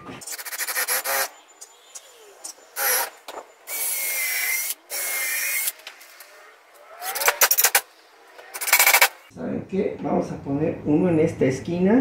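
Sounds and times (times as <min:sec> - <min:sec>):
cordless drill drilling into wood: 0:02.8 - 0:03.1.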